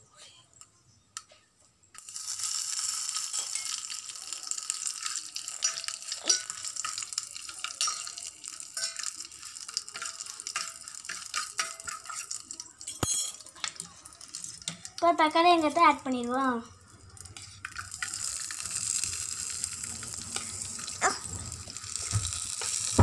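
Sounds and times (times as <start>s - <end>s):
leaves sizzling in hot oil: 1.9s - 23.0s
fork stirring in pan: 3.2s - 12.7s, 13.5s - 15.0s, 17.0s - 23.0s.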